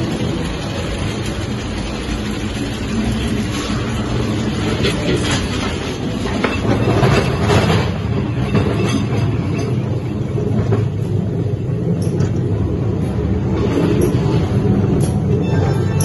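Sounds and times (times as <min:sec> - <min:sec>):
wheel clicks and knocks: 0:00.0 - 0:11.0
ride car rumbling on track: 0:00.0 - 0:16.0.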